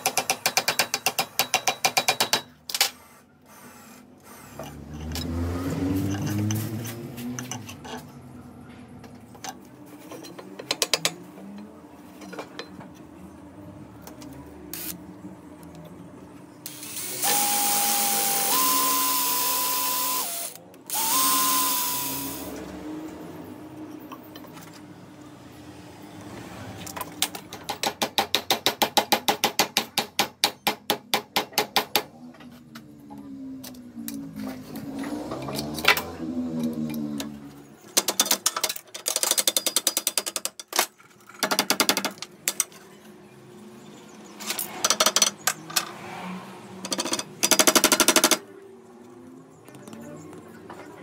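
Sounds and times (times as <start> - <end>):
electric drill boring into wood: 16.7 - 22.6.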